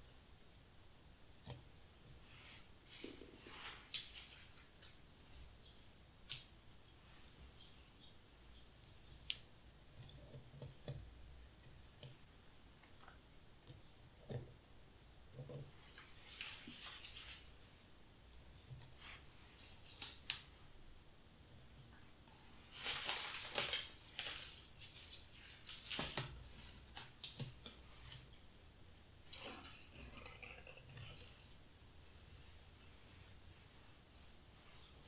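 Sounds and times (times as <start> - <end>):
dried grass stems rustling: 15.9 - 17.8, 22.7 - 27.4.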